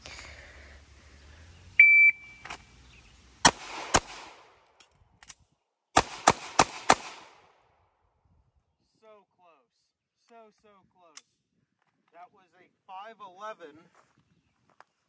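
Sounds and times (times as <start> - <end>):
shot timer beep: 1.8 - 2.5
handgun shots: 3.4 - 4.4, 6.0 - 7.4.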